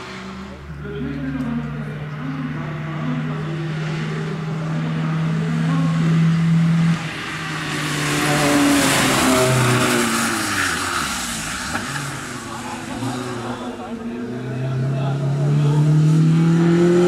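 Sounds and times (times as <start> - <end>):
car engine revving: 0.0 - 17.0
tyres hissing on wet tarmac: 8.3 - 14.0.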